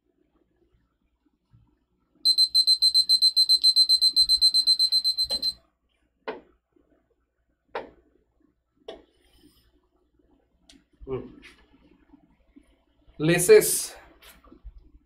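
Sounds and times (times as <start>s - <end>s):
rapid high-pitched timer beeping: 2.3s - 5.6s.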